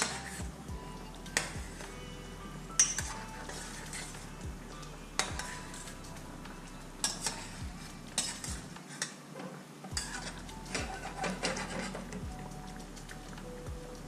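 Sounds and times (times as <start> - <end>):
utensil scraping frying pan: 0.0 - 0.4, 1.3 - 2.0, 2.8 - 6.3, 6.9 - 9.2, 9.9 - 13.4
sauce simmering: 0.0 - 8.8, 10.0 - 14.0.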